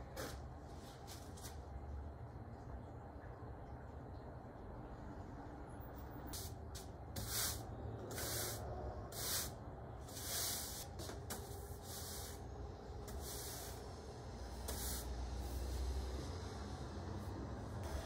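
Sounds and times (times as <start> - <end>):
broom sweeping soil on concrete: 6.4 - 12.4, 13.1 - 15.9.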